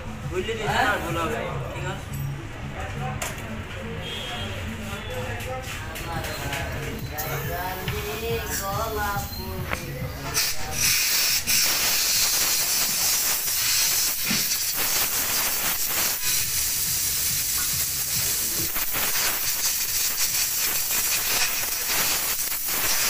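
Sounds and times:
compressed air hissing: 0:10.2 - 0:23.0.

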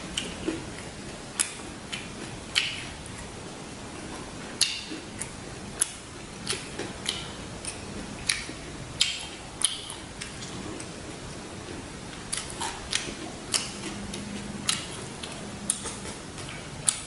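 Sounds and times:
crunching raw vegetables: 0:04.0 - 0:17.0.

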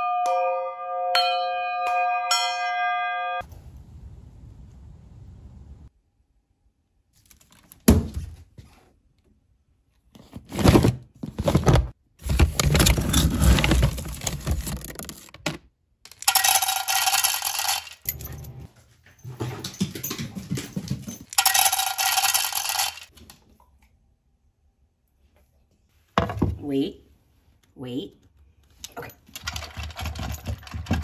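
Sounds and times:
kibble pellets rattling: 0:16.1 - 0:18.1, 0:21.3 - 0:23.1
metallic jangling and clinking: 0:16.1 - 0:23.1, 0:28.8 - 0:31.0.

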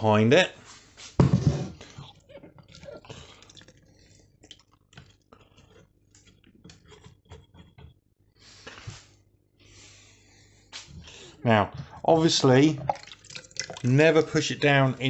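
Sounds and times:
small wet squelches: 0:01.8 - 0:06.6, 0:11.8 - 0:15.0.

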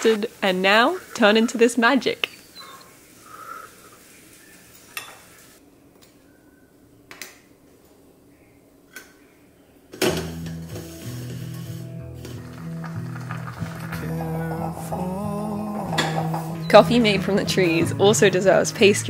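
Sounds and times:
music with low notes: 0:10.1 - 0:19.0.

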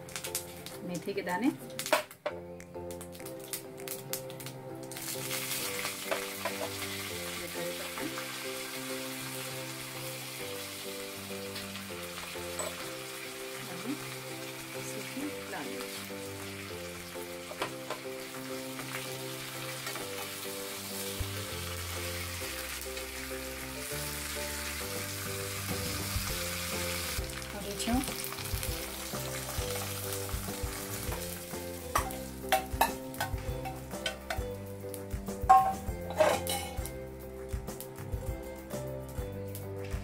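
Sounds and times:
background music: 0:00.0 - 0:40.0
spices sizzling in hot oil: 0:00.0 - 0:40.0
metallic clinks of pan scraping: 0:12.5 - 0:12.8, 0:35.5 - 0:36.9.

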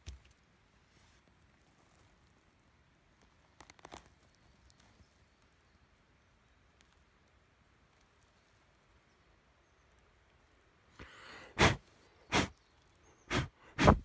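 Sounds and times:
soft rustle: 0:00.0 - 0:11.0.

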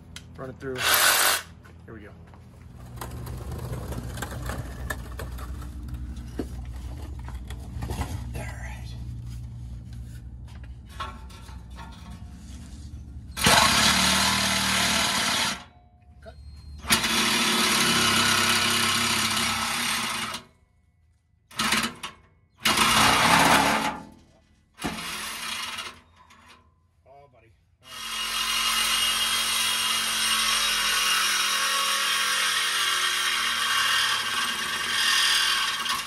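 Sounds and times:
reciprocating saw cutting steel pipe: 0:13.3 - 0:15.7, 0:16.8 - 0:20.4, 0:27.8 - 0:36.0.

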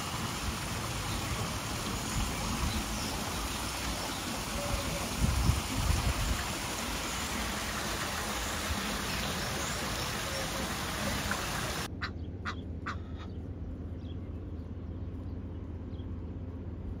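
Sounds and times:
running water rushing: 0:00.0 - 0:11.9.

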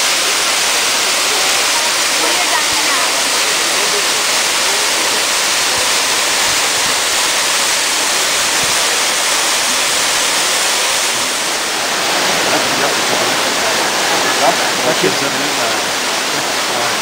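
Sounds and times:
waterfall rushing: 0:00.0 - 0:17.0.

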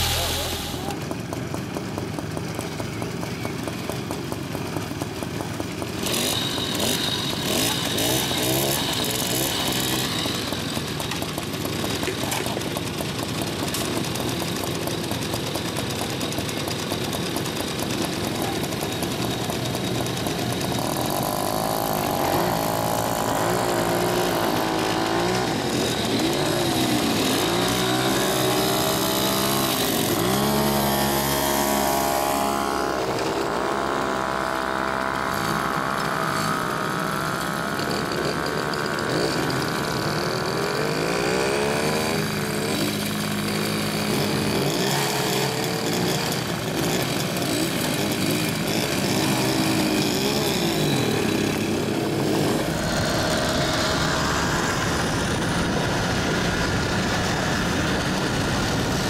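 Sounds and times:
moped engines revving: 0:00.0 - 0:59.0.

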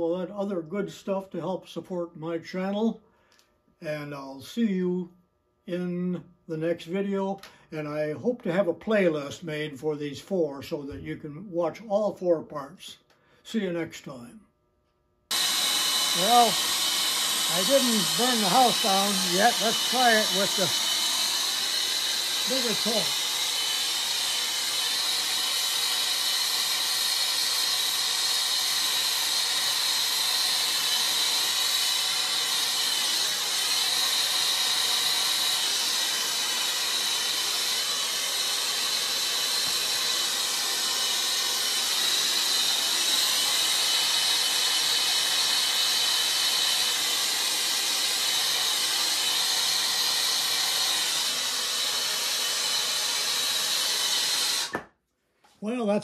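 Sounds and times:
gas torch hissing: 0:15.3 - 0:54.8.

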